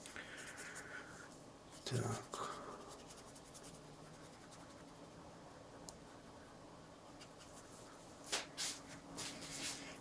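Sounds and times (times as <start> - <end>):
paintbrush scratching on paper: 1.7 - 5.1.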